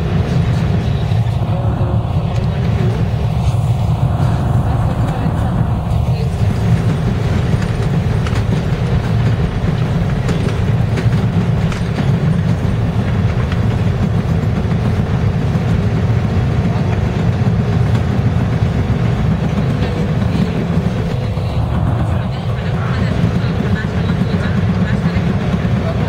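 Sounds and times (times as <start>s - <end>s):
subway train rumble from inside: 0.0s - 26.0s
wheel and rail clicks: 6.4s - 21.5s.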